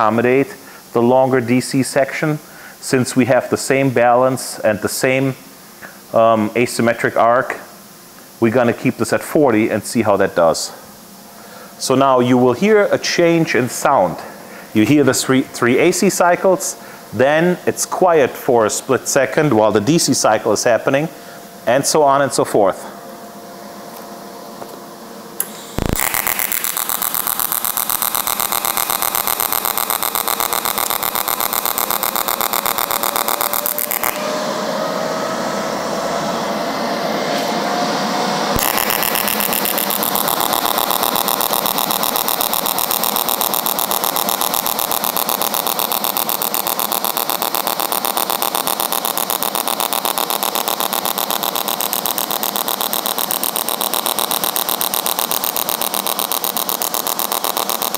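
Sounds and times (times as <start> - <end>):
welding arc buzzing: 25.4 - 34.3, 38.5 - 57.9.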